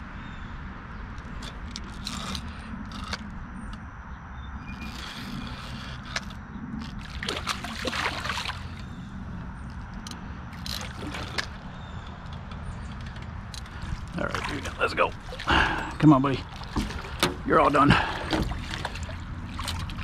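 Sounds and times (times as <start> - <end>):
steady low rumble: 0.0 - 20.0
fish thrashing in water: 4.6 - 9.8, 10.4 - 12.1, 13.5 - 20.0.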